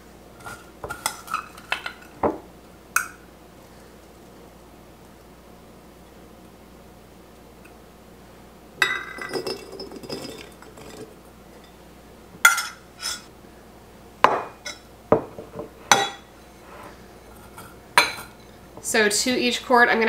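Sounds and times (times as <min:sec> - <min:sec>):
glass clinks: 0:08.8 - 0:11.0.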